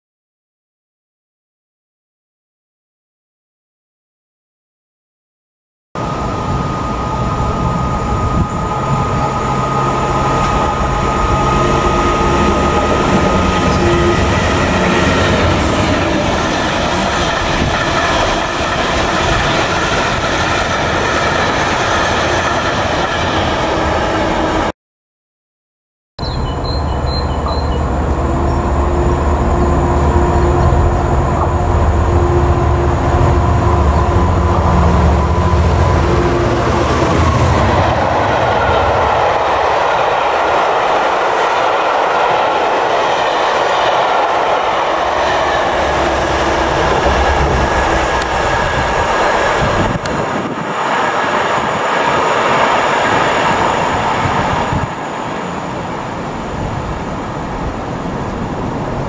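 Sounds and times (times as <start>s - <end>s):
locomotive engine drone: 6.0s - 24.7s, 26.2s - 41.4s, 42.2s - 59.0s
train wheels clattering on rail: 10.1s - 24.0s.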